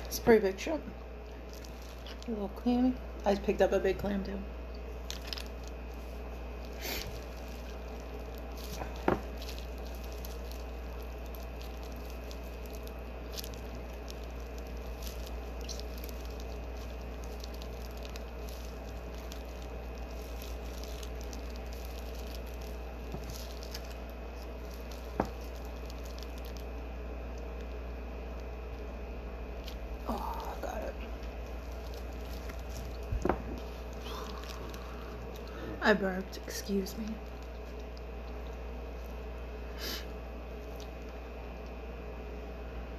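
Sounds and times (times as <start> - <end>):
steady low hum: 0.0 - 42.9
wet squishing of peeled shrimp: 1.2 - 2.5, 4.8 - 28.8, 29.5 - 35.7, 37.1 - 39.6, 40.4 - 41.8
shell crackling: 4.8 - 28.9, 29.6 - 35.7, 37.1 - 39.4.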